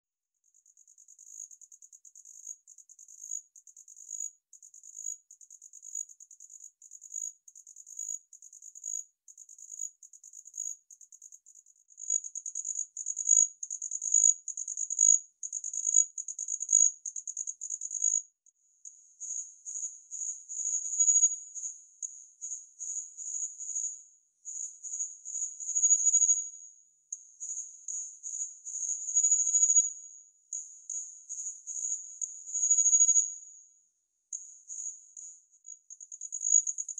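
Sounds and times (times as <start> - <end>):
cricket trilling: 12.0 - 18.2, 24.5 - 26.4, 28.8 - 29.9, 32.5 - 33.3, 35.9 - 36.9.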